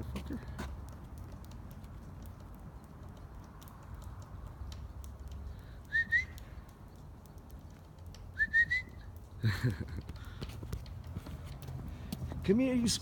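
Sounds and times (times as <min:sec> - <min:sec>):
person whistling rising chirps: 0:05.9 - 0:06.4, 0:08.4 - 0:09.0.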